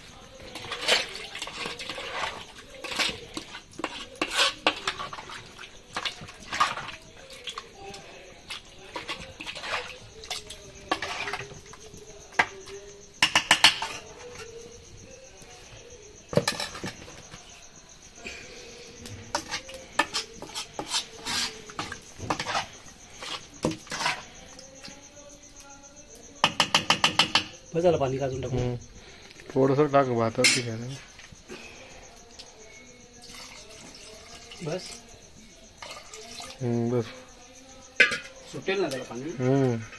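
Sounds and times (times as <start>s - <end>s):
metal spoon scraping a pot: 0.4s - 12.5s, 13.2s - 14.6s, 16.3s - 17.3s, 19.2s - 24.9s, 30.3s - 31.3s, 35.8s - 37.2s.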